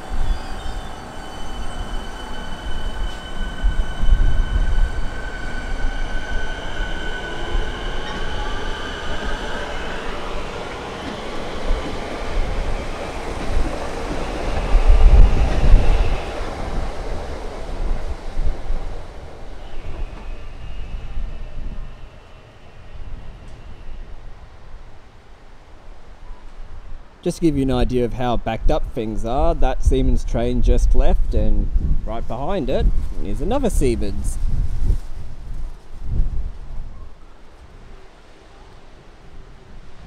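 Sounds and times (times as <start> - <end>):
train wheels rumbling on rail: 0.0 - 22.4
approaching train whine: 0.0 - 26.4.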